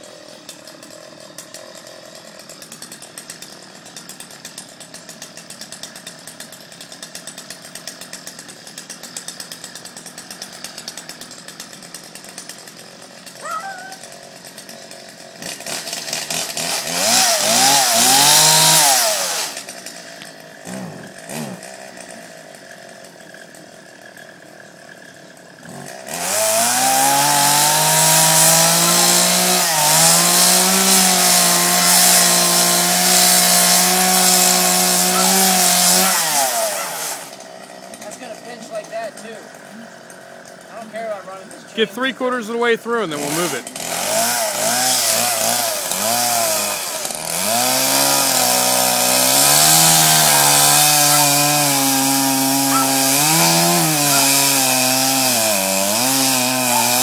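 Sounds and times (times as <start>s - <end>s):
chainsaw engine idling: 0.0s - 57.0s
chainsaw engine revving: 0.0s - 57.0s.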